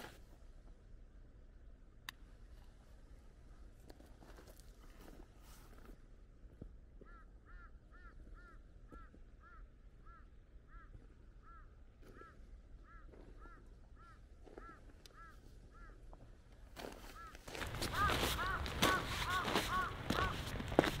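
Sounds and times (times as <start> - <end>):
bird honking call: 17.1 - 21.0.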